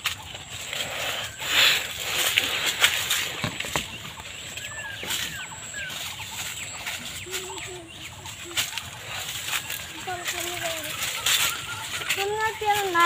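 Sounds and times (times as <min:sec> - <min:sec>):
branches and leaves rustling: 0:00.0 - 0:13.0
low animal calls: 0:00.0 - 0:13.0
animal chirping calls: 0:00.2 - 0:13.0
branches snapping: 0:01.6 - 0:05.5.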